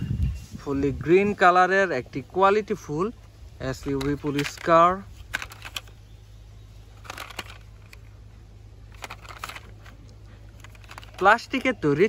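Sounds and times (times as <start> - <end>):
low hum: 0.0 - 12.0
plastic toy clicks and rustles: 3.7 - 6.0, 7.0 - 8.1, 8.9 - 12.0.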